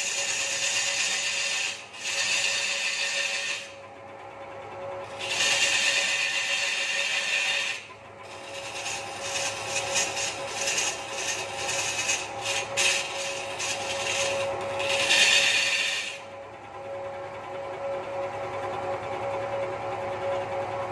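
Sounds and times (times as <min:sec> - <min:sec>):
turning tool scraping wood: 0:00.0 - 0:03.8, 0:05.0 - 0:16.9
lathe humming: 0:00.0 - 0:20.9.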